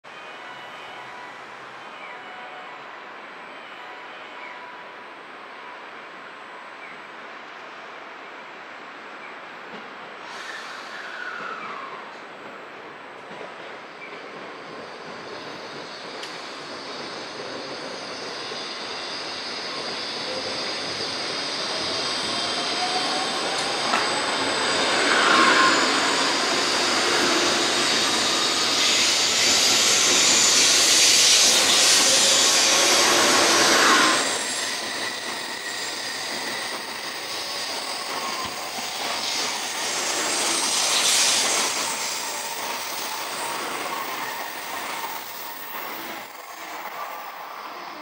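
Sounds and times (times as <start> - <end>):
train wheels and air rushing: 9.7 - 48.0.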